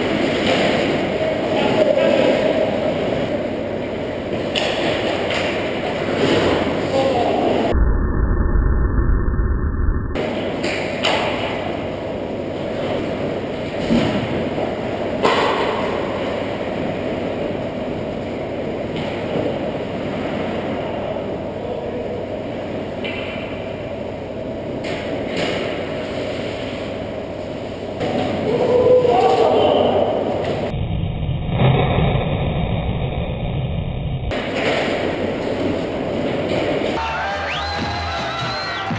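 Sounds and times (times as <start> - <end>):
hockey sticks and puck clacking: 4.2 - 7.1, 10.2 - 12.0, 12.6 - 16.9, 34.3 - 37.0
muffled low rumble: 7.6 - 10.3, 30.6 - 34.4.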